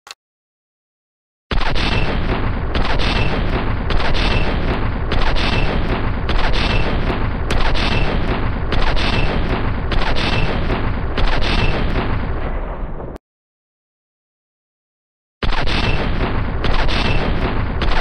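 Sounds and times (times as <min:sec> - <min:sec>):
heavy machine gun firing: 0:01.5 - 0:13.1, 0:15.4 - 0:18.0.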